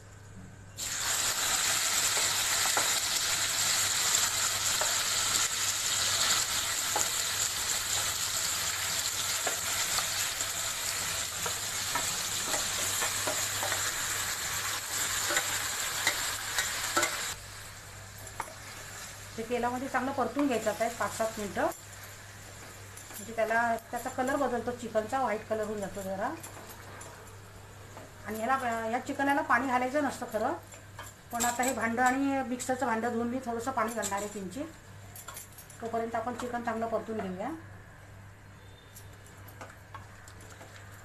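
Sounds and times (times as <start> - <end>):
chicken sizzling in hot oil: 0.8 - 17.8.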